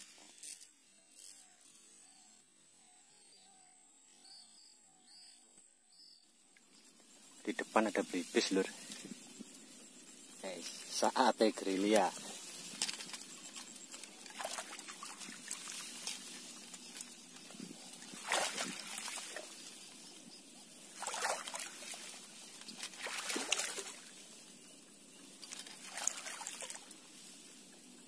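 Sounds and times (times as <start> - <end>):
grass and reeds rustling: 0.0 - 1.8, 6.6 - 28.0
swishes of stems: 11.6 - 27.8.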